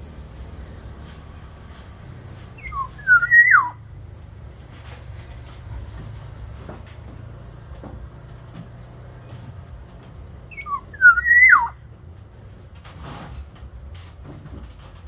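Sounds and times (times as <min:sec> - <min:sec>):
bird whistling: 0:02.6 - 0:03.8, 0:10.5 - 0:11.8.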